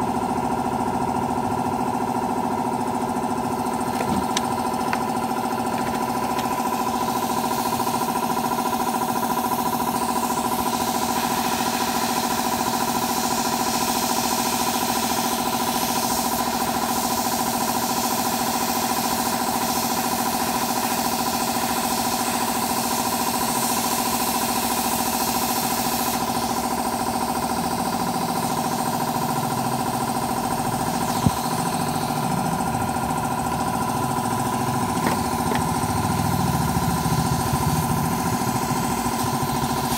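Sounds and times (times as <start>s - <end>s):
small motor humming: 2.7s - 14.8s, 25.6s - 39.9s.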